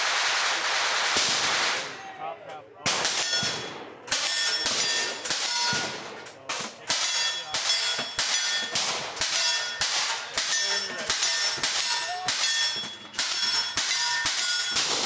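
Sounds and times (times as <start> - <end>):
pistol shots with ringing tail: 2.9 - 15.0.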